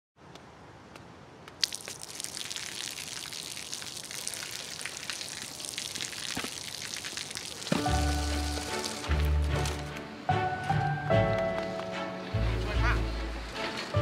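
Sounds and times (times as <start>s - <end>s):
water spattering on pavement: 1.5s - 9.9s.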